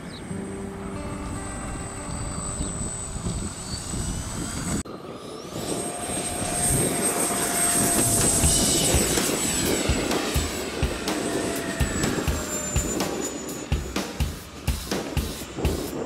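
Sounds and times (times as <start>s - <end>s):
model jet high whine: 0.0s - 16.0s
wind buffeting microphone: 0.0s - 16.0s
model plane motor whining: 3.1s - 13.7s.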